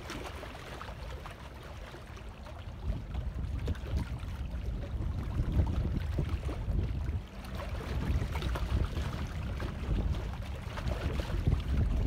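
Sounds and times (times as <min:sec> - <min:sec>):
small waves lapping: 0:00.0 - 0:12.0
wind buffeting microphone: 0:02.4 - 0:12.0.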